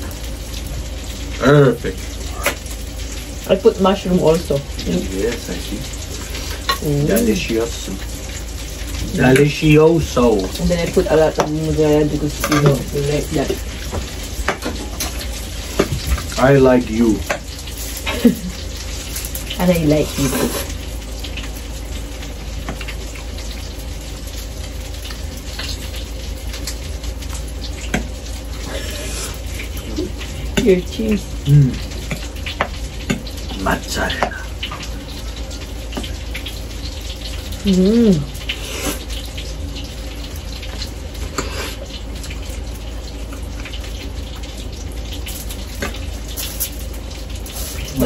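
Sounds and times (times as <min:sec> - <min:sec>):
steady hiss: 0:45.2 - 0:48.0.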